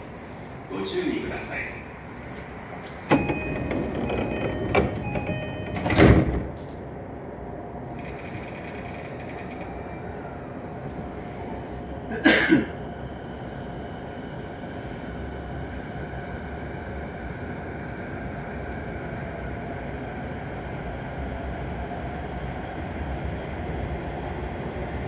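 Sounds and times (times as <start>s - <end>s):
train car humming: 0.0s - 25.0s
sliding doors shutting: 2.8s - 6.8s
door chime beeping: 3.1s - 6.1s.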